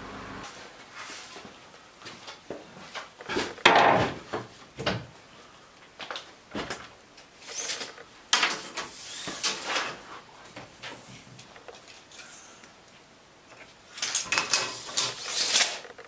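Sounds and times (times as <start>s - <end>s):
wooden boards knocking and scraping: 3.3s - 5.0s
tape measure drawn out: 14.5s - 15.8s.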